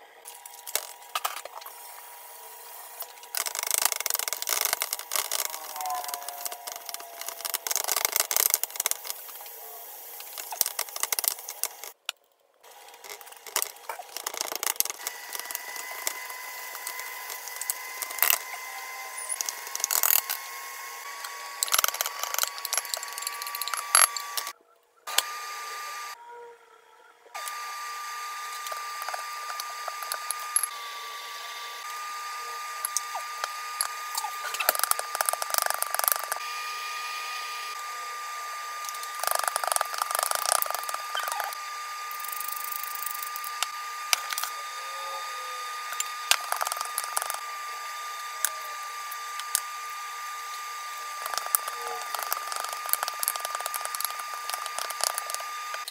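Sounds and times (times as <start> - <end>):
filling mixed by hand: 51.2 - 55.9.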